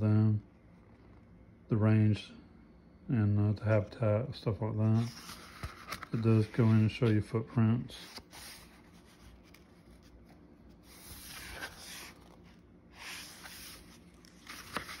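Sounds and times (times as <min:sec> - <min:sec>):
book pages rustling: 0:04.8 - 0:07.2, 0:07.9 - 0:15.0.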